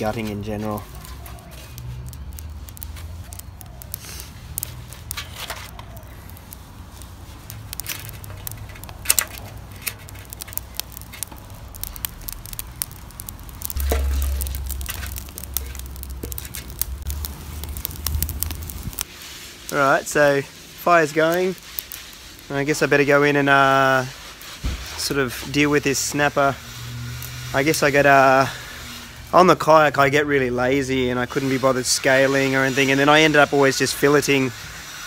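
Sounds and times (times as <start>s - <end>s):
twigs crackling in fire: 0.0s - 35.0s
low rumble: 7.4s - 19.0s.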